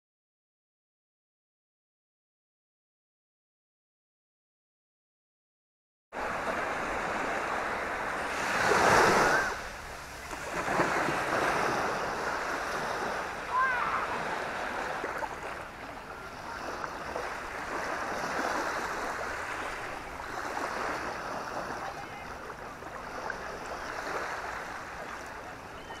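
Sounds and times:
small waves washing on sand: 6.2s - 26.0s.

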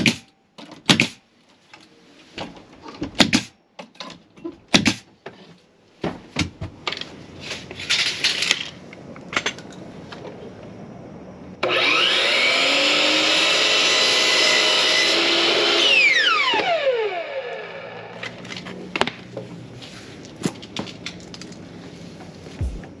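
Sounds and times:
power tool motor whining: 11.6s - 18.0s.

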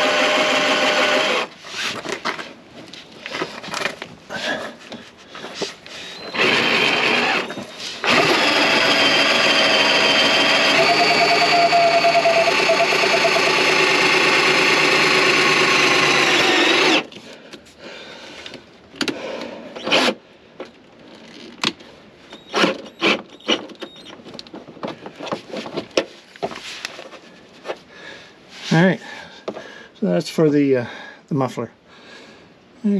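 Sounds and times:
cordless drill boring into sheet metal: 0.0s - 1.5s, 6.2s - 17.1s.

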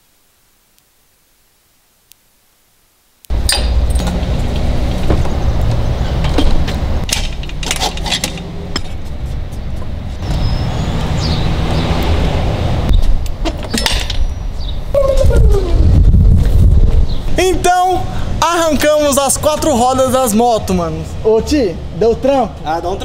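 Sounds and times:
tools knocking and clanking: 3.3s - 5.4s, 6.2s - 9.9s, 13.2s - 14.3s
steady low rumble: 14.7s - 19.7s.

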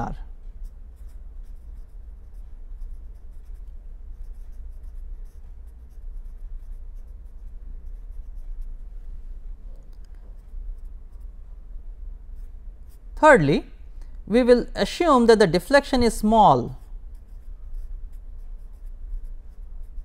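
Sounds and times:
steady low hum: 0.0s - 20.0s
pen scratching on paper: 0.9s - 8.8s, 10.2s - 11.3s, 16.7s - 20.0s.

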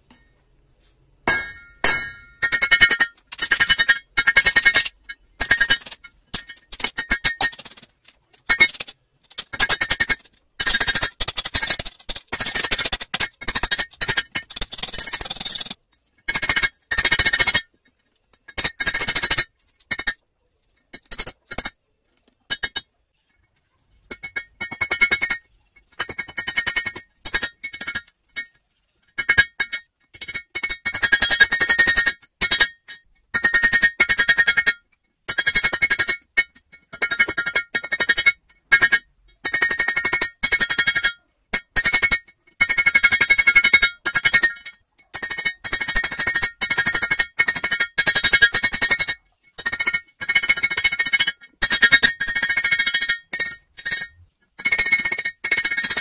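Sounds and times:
hammer striking steel on anvil: 1.2s - 3.2s.

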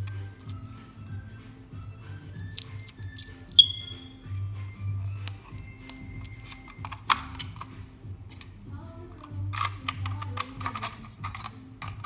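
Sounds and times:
background music: 0.0s - 12.0s
battery clip clicks: 2.4s - 3.8s, 5.2s - 8.5s, 9.1s - 12.0s.

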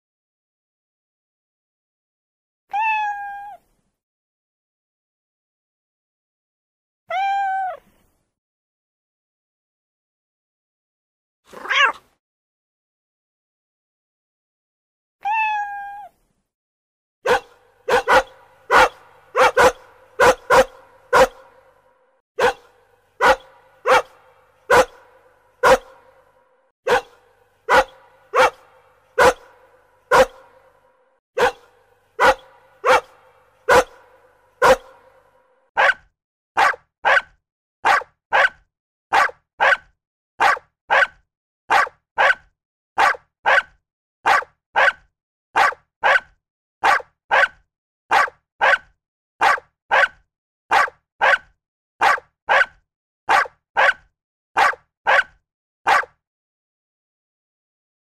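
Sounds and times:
dog barking: 11.5s - 12.0s, 17.2s - 56.2s.

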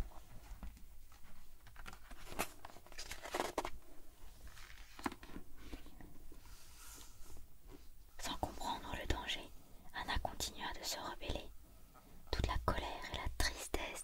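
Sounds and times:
book page turning: 1.6s - 3.8s, 4.4s - 5.9s.

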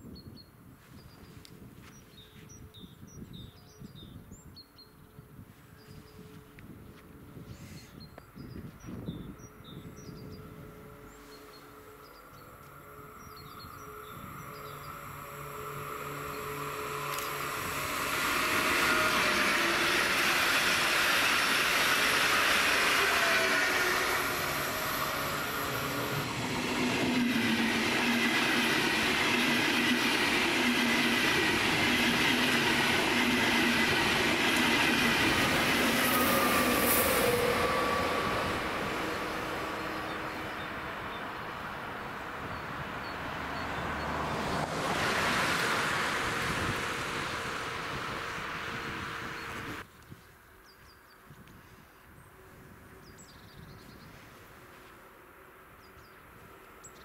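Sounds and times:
electric train whine: 1.2s - 49.9s
train wheels clacking on rails: 15.8s - 40.2s.

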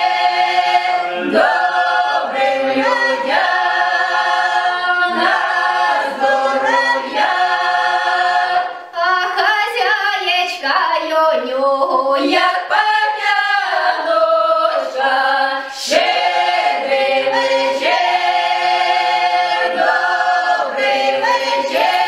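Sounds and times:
mixed choir singing a carol: 0.0s - 9.8s, 11.6s - 22.0s.

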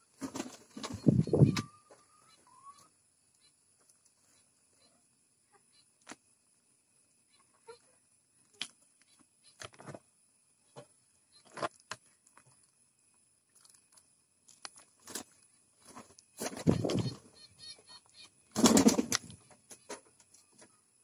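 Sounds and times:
wing flutters: 0.1s - 1.9s, 15.0s - 20.8s.

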